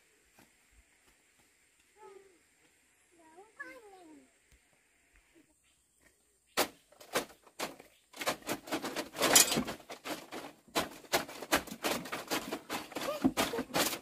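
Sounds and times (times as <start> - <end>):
clattering and rustling: 6.6 - 14.0.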